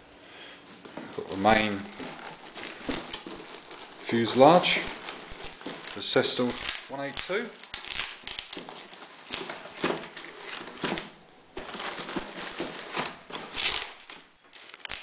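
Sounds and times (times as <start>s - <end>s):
cardboard box rustling: 0.8s - 6.7s, 8.5s - 14.2s
plastic bag crinkling: 0.8s - 15.0s.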